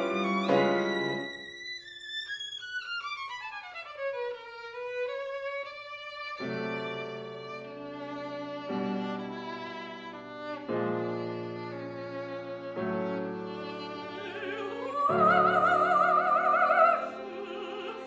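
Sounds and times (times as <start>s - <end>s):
piano chords: 0.0s - 1.4s, 8.4s - 17.8s
solo violin: 0.0s - 18.0s.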